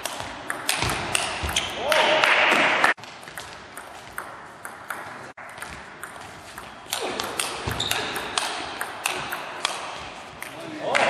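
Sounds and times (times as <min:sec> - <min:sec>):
table tennis ball clicking: 0:00.0 - 0:01.6, 0:03.2 - 0:09.8.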